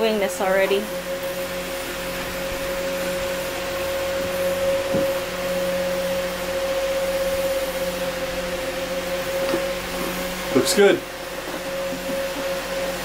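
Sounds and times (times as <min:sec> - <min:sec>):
electric machine whirring: 0:00.0 - 0:13.0.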